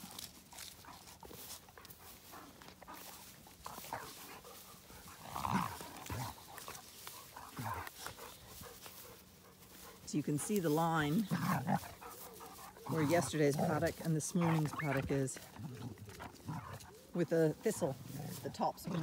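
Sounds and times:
scuffling in grass: 0.0s - 19.0s.

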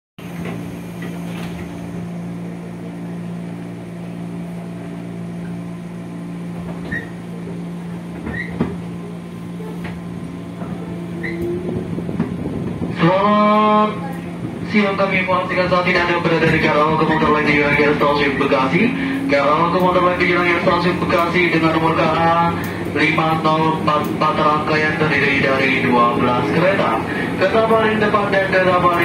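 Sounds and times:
train car hum: 0.2s - 29.0s
faint short squeaks: 6.8s - 7.2s, 8.2s - 8.6s, 11.2s - 11.7s
public address tone: 13.0s - 29.0s.

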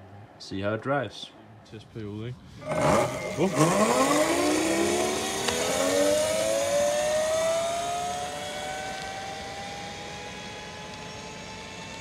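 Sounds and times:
electric motor whining: 2.6s - 12.0s.

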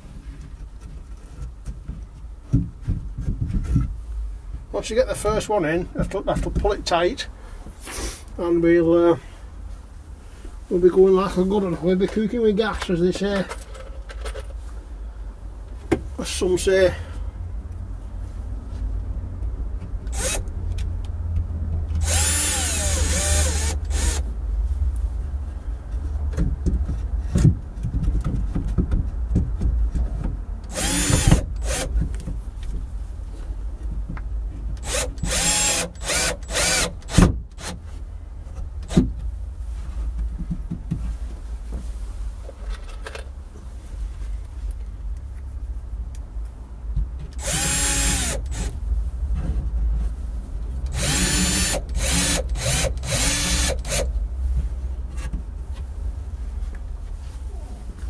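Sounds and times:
cordless drill driving screws: 20.1s - 20.4s, 22.0s - 24.2s, 30.7s - 31.9s, 34.8s - 37.8s, 47.4s - 48.7s, 50.9s - 54.1s.

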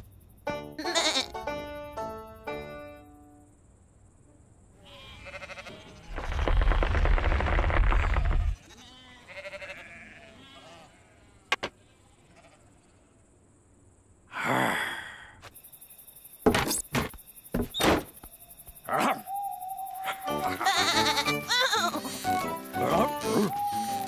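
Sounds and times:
cartoon bleating call: 0.8s - 1.4s, 20.2s - 24.0s
cartoon knocks and thuds: 16.4s - 18.3s.

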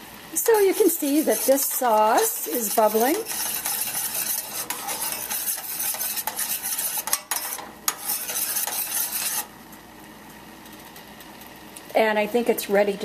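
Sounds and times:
spoon scraping a saucepan: 0.4s - 9.5s.

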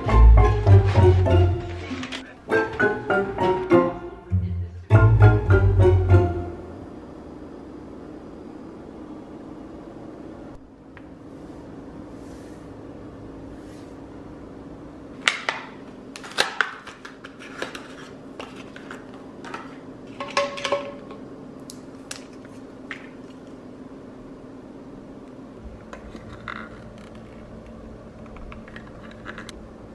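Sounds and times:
steady low hum: 0.0s - 15.2s.

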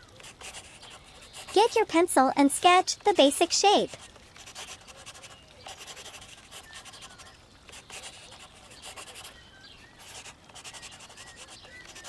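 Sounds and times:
pencil scratching on paper: 0.2s - 1.8s, 3.8s - 9.3s, 10.0s - 12.0s.

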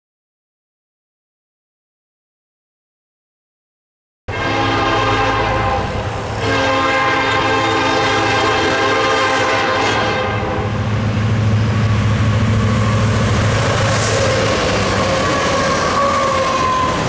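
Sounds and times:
train air horn blasts: 4.3s - 10.8s, 14.0s - 17.0s
diesel locomotive engines: 4.3s - 17.0s.

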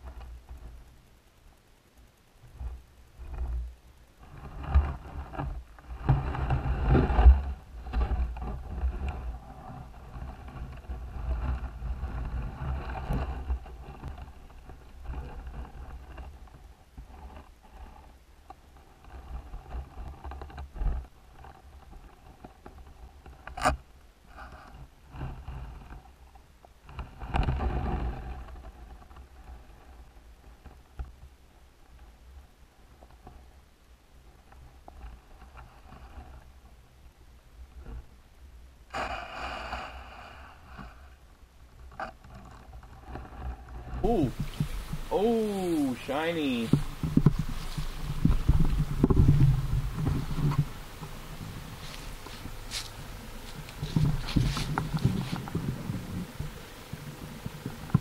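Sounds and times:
muffled underwater noise: 43.9s - 58.0s.

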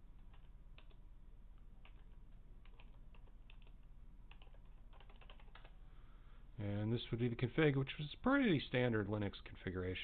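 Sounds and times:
computer keyboard typing: 0.2s - 1.0s, 1.8s - 5.8s.

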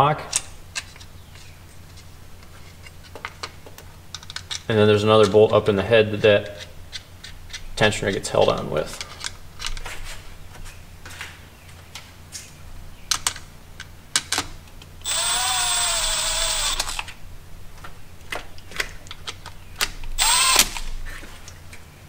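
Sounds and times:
power tool motor whine: 15.0s - 17.1s, 20.2s - 20.9s.

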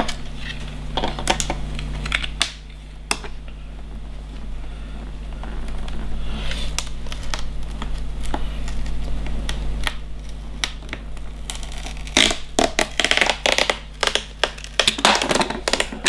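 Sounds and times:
low electrical hum: 0.0s - 16.0s
clicks and scratches on plastic: 5.4s - 16.0s.

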